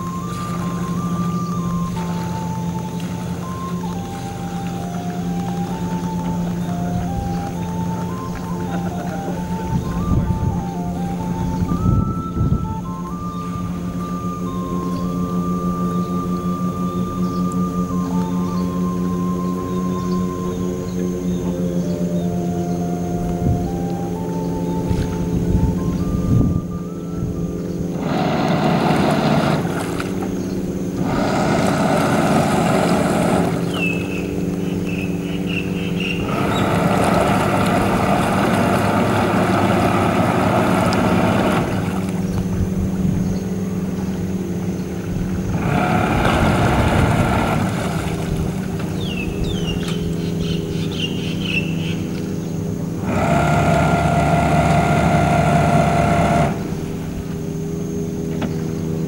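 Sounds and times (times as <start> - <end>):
boat engine humming: 0.0 - 59.0
loud higher noise: 27.8 - 48.9.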